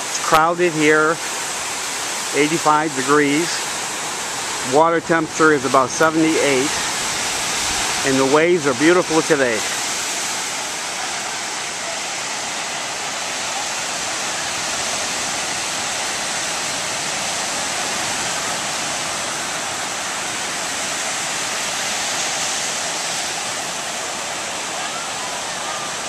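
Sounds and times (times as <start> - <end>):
ocean surf breaking: 0.0 - 26.0.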